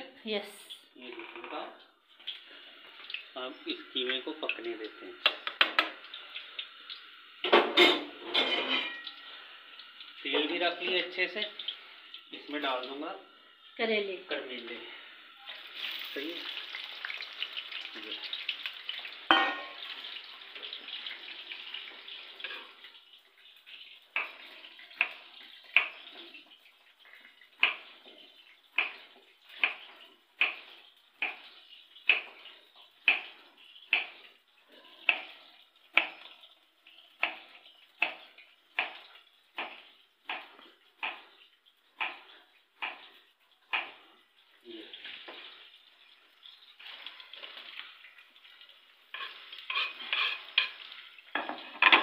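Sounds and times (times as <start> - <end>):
frying sizzle: 0.0 - 52.0
vegetable pieces dropped into hot oil: 15.8 - 19.9.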